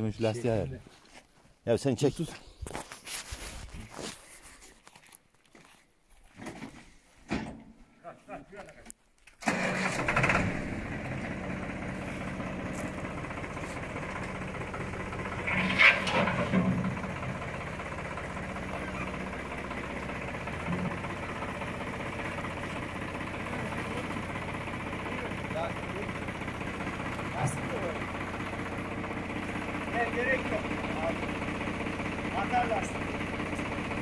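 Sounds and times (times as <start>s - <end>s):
diesel tractor engine idling: 9.4s - 34.0s.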